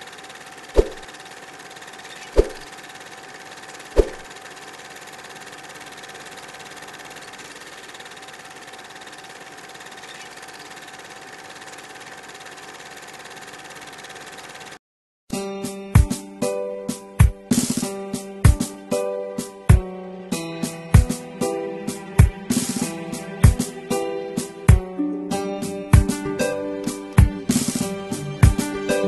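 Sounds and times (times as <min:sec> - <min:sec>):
sharp thuds: 0:00.8 - 0:01.0, 0:02.4 - 0:02.6, 0:04.0 - 0:04.2.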